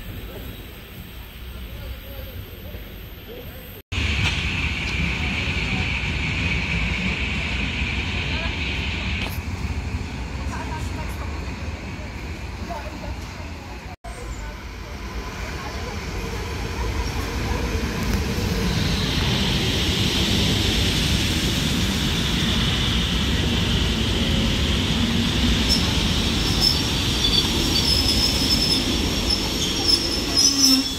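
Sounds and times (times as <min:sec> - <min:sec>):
train wheels rumbling on rail: 0:00.0 - 0:30.9
high wheel and brake squeal: 0:25.6 - 0:30.9.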